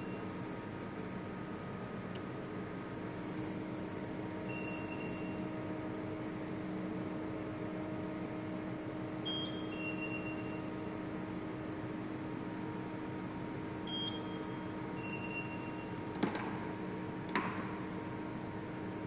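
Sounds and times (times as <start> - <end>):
hardness tester humming: 0.0 - 12.2
short high beeps: 9.3 - 10.6.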